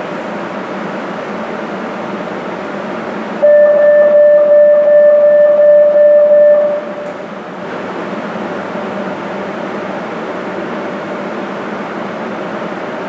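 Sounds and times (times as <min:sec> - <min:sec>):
train humming: 0:00.0 - 0:13.0
door-closing warning tone: 0:03.4 - 0:07.2.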